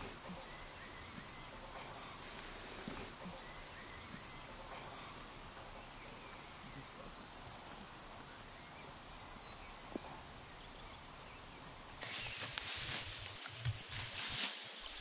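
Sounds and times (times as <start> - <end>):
faint outdoor ambience: 0.0 - 15.0
rustling with crisp crackles: 12.0 - 15.0.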